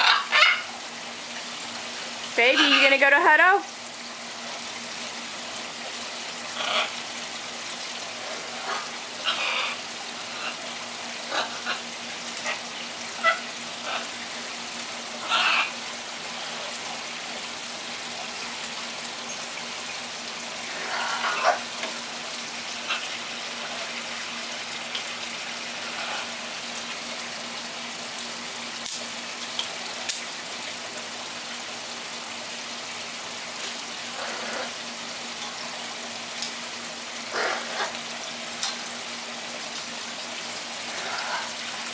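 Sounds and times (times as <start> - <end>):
parrots squawking: 0.0 - 0.8, 2.4 - 3.2, 6.5 - 7.1, 8.2 - 14.2, 15.2 - 15.8, 20.7 - 21.8, 22.7 - 23.9, 25.8 - 26.4, 34.1 - 34.8, 37.3 - 38.0, 40.9 - 41.9.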